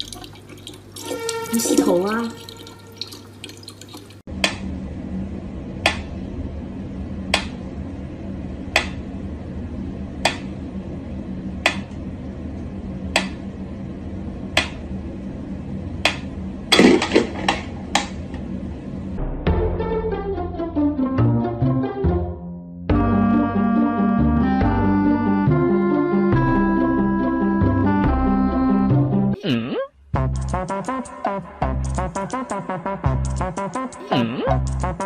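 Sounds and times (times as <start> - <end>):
steady low hum: 4.2 - 19.4.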